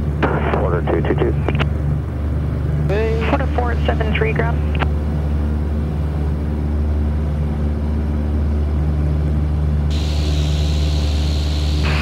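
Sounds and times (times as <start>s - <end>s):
airplane engine and propeller droning: 0.0s - 12.0s
radio static hiss: 9.9s - 12.0s.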